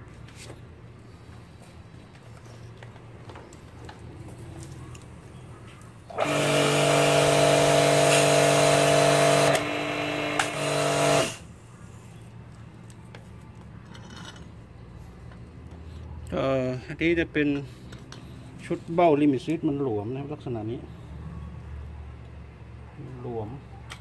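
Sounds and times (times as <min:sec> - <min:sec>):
pressure washer motor humming: 0:06.1 - 0:11.4.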